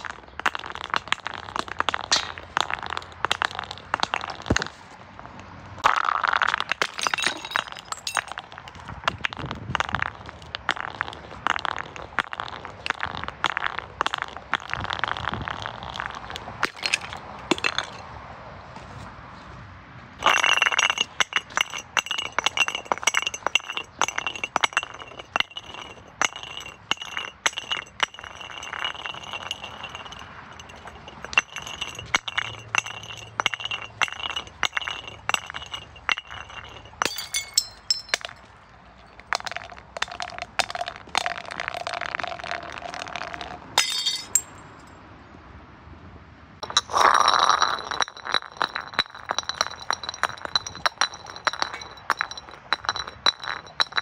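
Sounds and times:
glass bottles clinking: 0:06.6 - 0:08.4, 0:20.2 - 0:44.7, 0:46.6 - 0:54.0
glass breaking: 0:20.2 - 0:38.4, 0:43.8 - 0:44.6.

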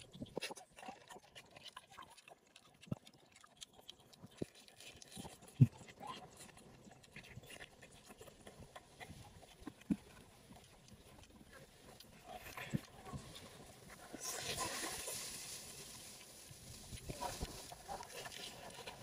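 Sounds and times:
wet mouth clicks and smacks: 0:00.0 - 0:13.2
person chewing: 0:00.0 - 0:19.0.

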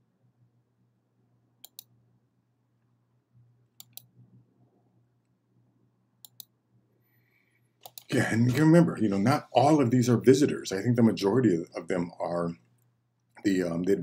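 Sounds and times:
faint low hum: 0:00.0 - 0:14.0
computer mouse clicks: 0:01.6 - 0:02.0, 0:03.8 - 0:04.3, 0:06.2 - 0:06.6, 0:07.8 - 0:08.1.

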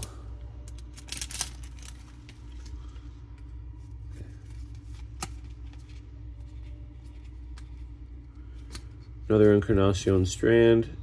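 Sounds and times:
cards clicking and rustling: 0:00.0 - 0:02.8, 0:04.4 - 0:07.9
low steady hum: 0:00.0 - 0:11.0.

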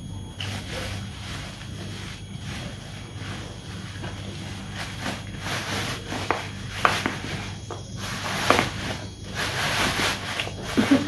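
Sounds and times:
plastic bags rustling and crinkling: 0:00.4 - 0:11.0.

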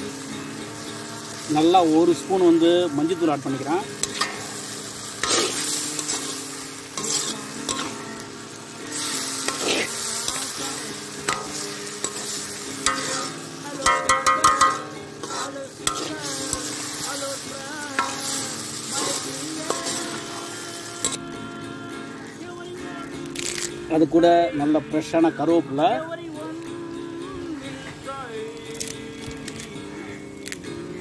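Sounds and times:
onions and tomatoes sizzling: 0:00.0 - 0:31.0
metal ladle scraping a pan: 0:03.5 - 0:21.2.

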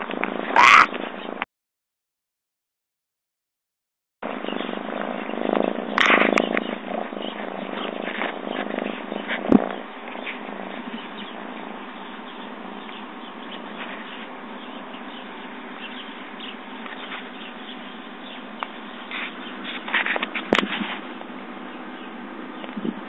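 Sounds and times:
cat purring: 0:04.4 - 0:11.0
fur rubbing on microphone: 0:05.1 - 0:10.9, 0:19.1 - 0:21.1.

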